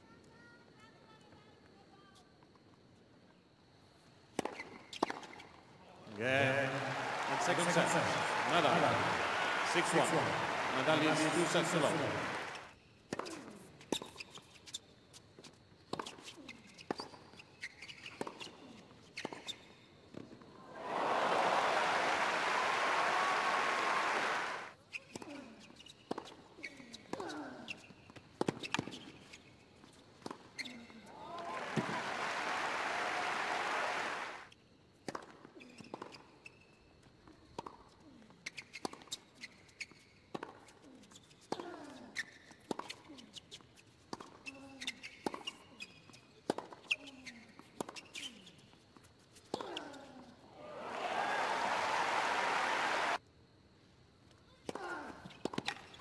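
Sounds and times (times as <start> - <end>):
crowd applause and cheering: 6.1 - 12.7, 20.6 - 24.7, 31.2 - 34.5, 50.6 - 53.2.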